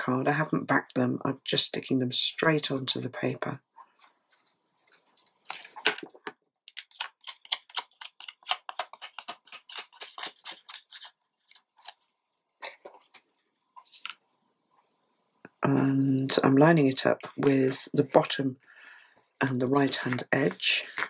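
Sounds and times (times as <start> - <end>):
paper and card rustling: 5.5 - 14.2, 19.4 - 21.0.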